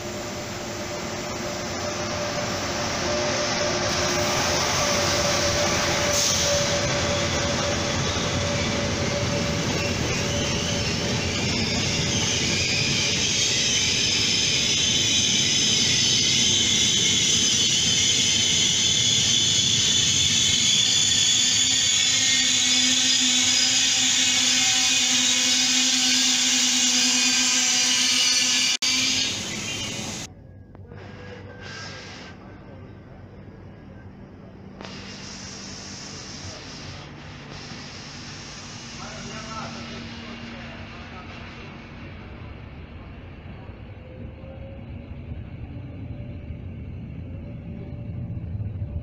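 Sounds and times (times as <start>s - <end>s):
high squeal: 0.0s - 30.3s
train rumbling on rails: 0.0s - 49.0s.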